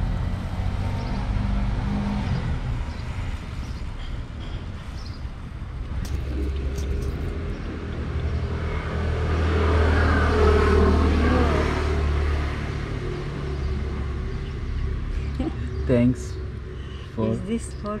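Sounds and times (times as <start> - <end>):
car passing: 0.0 - 3.9, 5.7 - 18.0.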